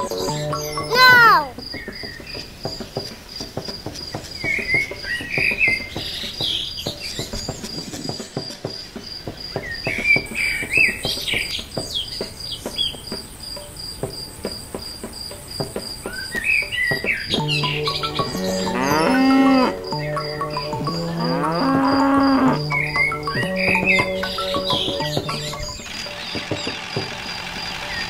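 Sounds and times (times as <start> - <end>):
birds chirping: 0.0 - 28.0
cricket chirring: 6.8 - 28.0.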